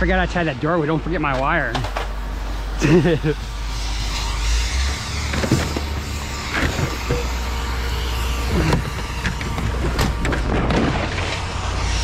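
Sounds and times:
vehicle engine rumbling: 0.0 - 12.0
metallic squeaks and scrapes: 3.6 - 12.0.

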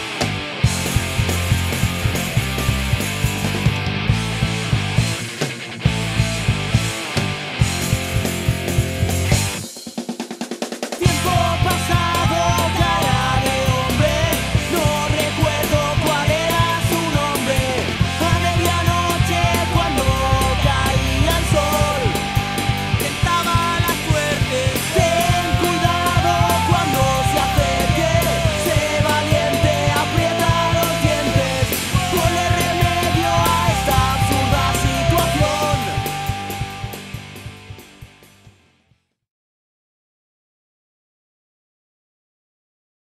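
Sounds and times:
punk rock band playing: 0.0 - 38.7.

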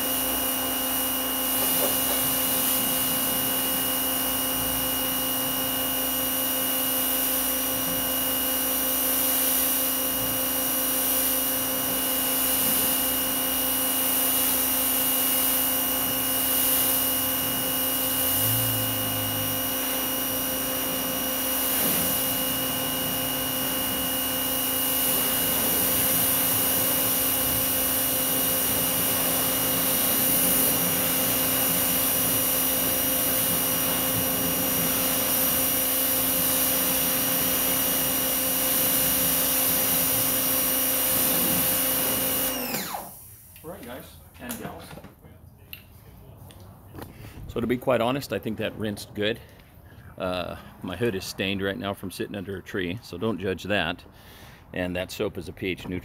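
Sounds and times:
pressure washer pump humming: 0.0 - 43.7
water spray hissing: 21.6 - 22.4.

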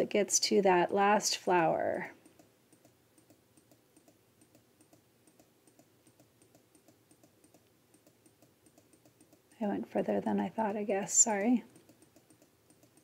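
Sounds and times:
faint computer clicks: 2.2 - 9.6, 11.3 - 13.0.

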